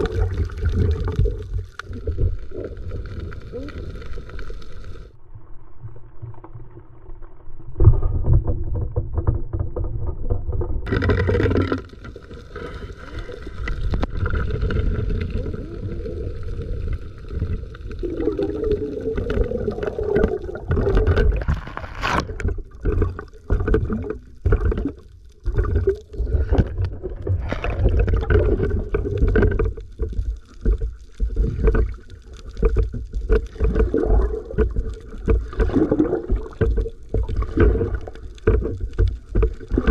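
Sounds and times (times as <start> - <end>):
underwater rush of water: 0.0 - 39.9
knocks and scrapes: 7.7 - 15.5, 19.2 - 39.9.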